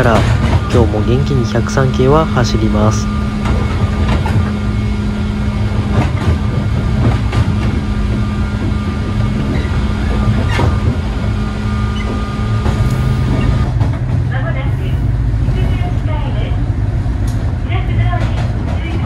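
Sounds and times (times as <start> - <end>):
train interior rumble: 0.0 - 19.0
traction motor hum: 0.2 - 14.3
wheels clacking over rail joints: 3.3 - 4.6, 5.7 - 14.4.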